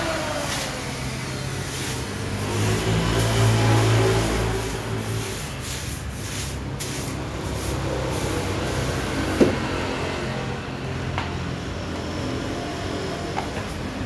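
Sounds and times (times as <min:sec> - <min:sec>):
hand brush sweeping wooden table: 0:03.1 - 0:09.4.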